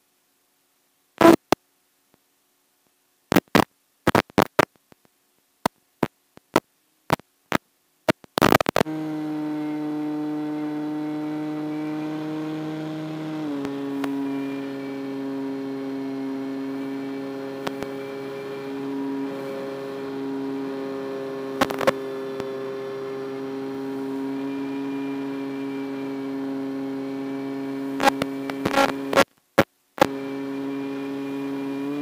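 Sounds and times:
electric motor and propeller hum: 0:08.8 - 0:29.2, 0:30.0 - 0:32.0.

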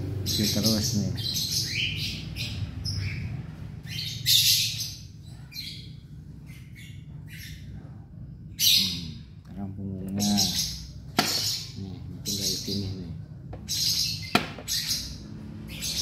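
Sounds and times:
low steady hum: 0:00.0 - 0:16.0
squirrel squeaking: 0:10.2 - 0:12.9, 0:13.6 - 0:16.0.

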